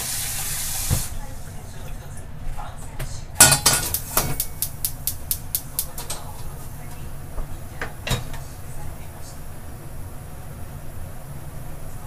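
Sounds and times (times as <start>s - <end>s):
wok knocking on stove grate: 3.4s - 6.6s.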